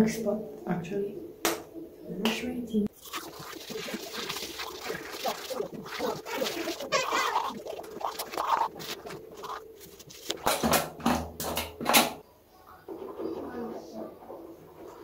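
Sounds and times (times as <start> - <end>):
toothbrush scrubbing teeth: 2.9 - 10.5.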